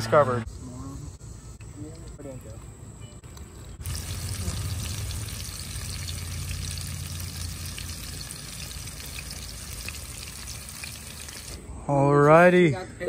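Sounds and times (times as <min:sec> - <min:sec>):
low hum: 0:03.0 - 0:11.9
fish frying in hot oil: 0:03.8 - 0:11.6.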